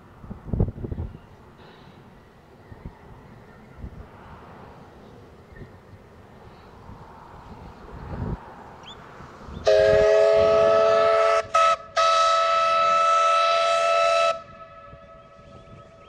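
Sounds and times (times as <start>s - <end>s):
train rumbling: 0.0s - 16.0s
steam locomotive whistle: 9.6s - 16.0s.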